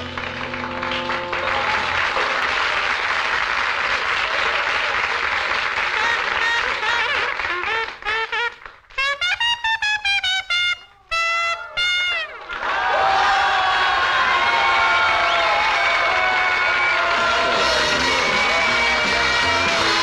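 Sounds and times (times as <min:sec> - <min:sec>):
solo trumpet playing: 0:00.0 - 0:02.4, 0:05.9 - 0:12.5, 0:17.5 - 0:20.0
swing jazz band with brass: 0:05.7 - 0:12.5, 0:17.2 - 0:20.0.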